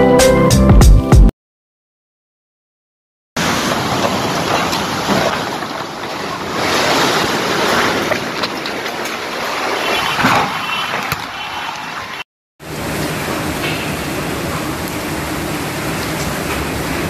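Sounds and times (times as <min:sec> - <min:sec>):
heavy rain: 0:03.4 - 0:17.0.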